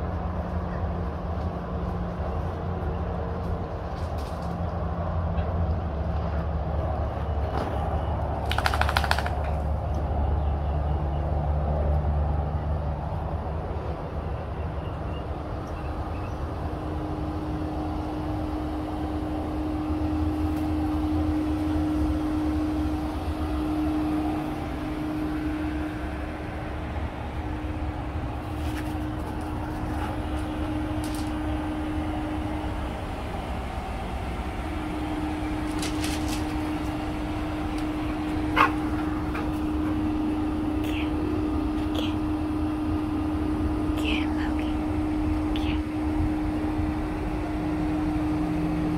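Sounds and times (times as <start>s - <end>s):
pool equipment humming: 15.2s - 48.9s.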